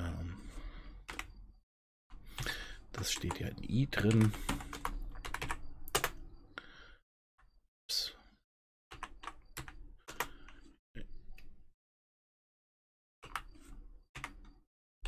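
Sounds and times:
typing on computer keyboard: 1.0 - 1.3, 2.2 - 6.2, 8.9 - 10.6, 13.2 - 14.6.

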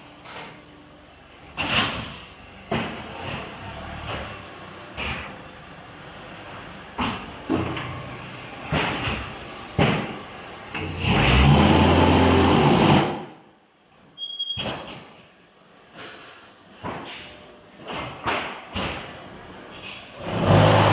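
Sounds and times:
machine metal clanks and thuds: 1.5 - 5.6, 6.9 - 11.0, 15.9 - 20.9.

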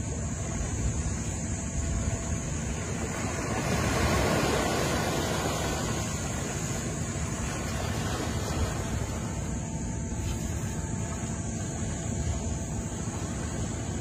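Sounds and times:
small waves washing onto sand: 0.0 - 14.0
wind rumbling on microphone: 0.0 - 14.0.

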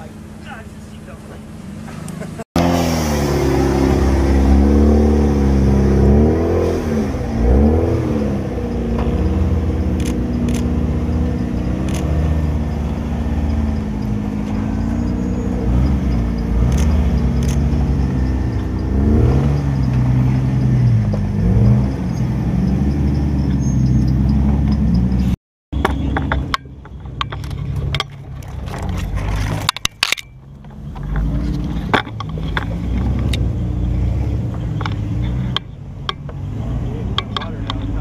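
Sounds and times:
buggy engine revving under load: 1.3 - 26.6, 30.3 - 38.0
sharp clicks: 9.9 - 10.7, 11.8 - 12.1, 16.6 - 17.7.

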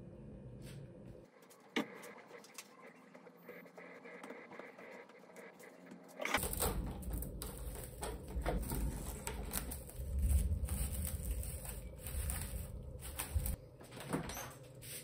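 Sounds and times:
cling film crinkling: 6.4 - 13.6
steady low rumble: 6.4 - 13.8.

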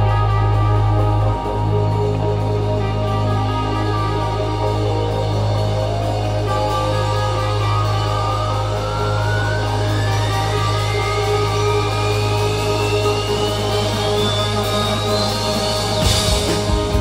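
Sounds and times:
droning electric guitars: 0.0 - 17.0
high tone rising in pitch: 0.0 - 17.0
rock band playing: 0.0 - 17.0.

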